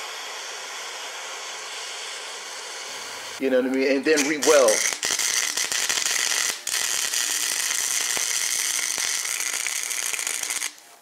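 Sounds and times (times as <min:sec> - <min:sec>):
welding arc crackling: 0:00.0 - 0:10.8.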